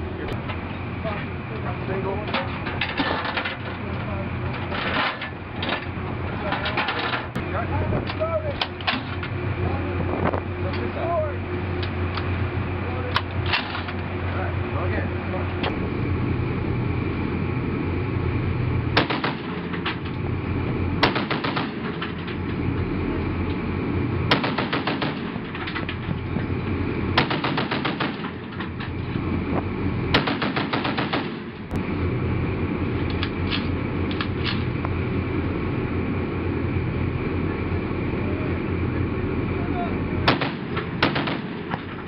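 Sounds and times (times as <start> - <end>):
low rumble: 0.0 - 30.4, 31.4 - 42.0
machine gun bursts: 19.0 - 19.6, 21.0 - 21.9, 24.3 - 25.3, 27.2 - 28.4, 30.2 - 31.5, 40.3 - 41.7.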